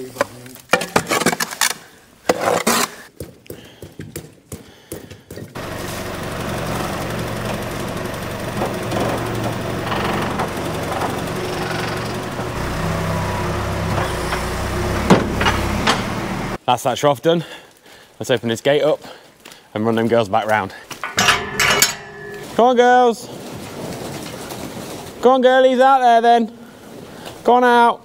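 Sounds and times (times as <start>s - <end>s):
knocks and clatters on concrete: 2.3s - 5.6s, 20.9s - 22.6s
tractor diesel engine running: 5.6s - 16.6s, 21.0s - 22.6s.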